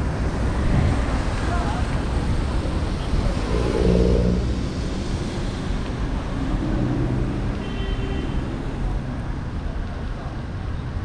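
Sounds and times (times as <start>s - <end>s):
wind rumble on microphone: 0.0s - 7.6s.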